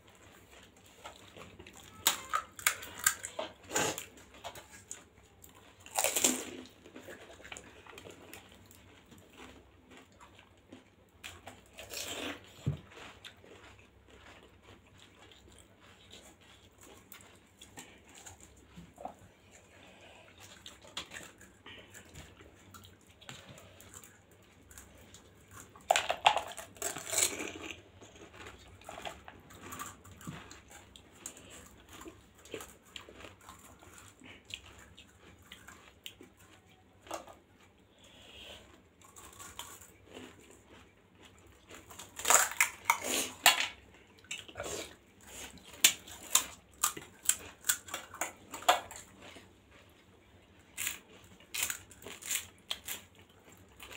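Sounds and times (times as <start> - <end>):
wet chewing: 0.0 - 53.9
crisp shells crunching: 41.7 - 43.8.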